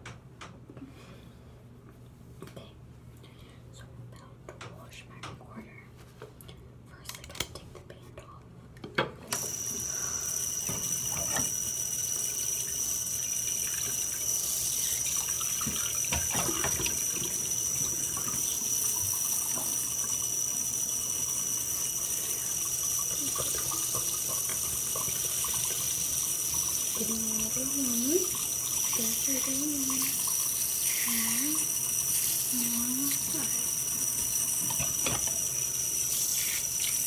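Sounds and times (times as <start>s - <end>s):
tap water running into basin: 9.3s - 37.0s.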